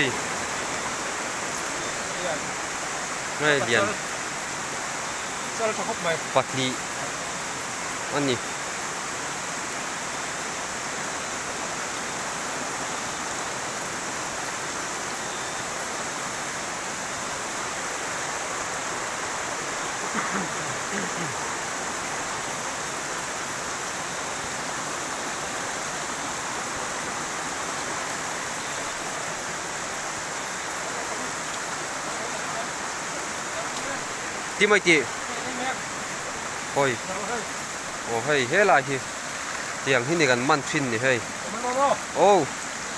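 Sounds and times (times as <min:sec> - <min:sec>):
night-time outdoor hiss: 0:00.0 - 0:42.9.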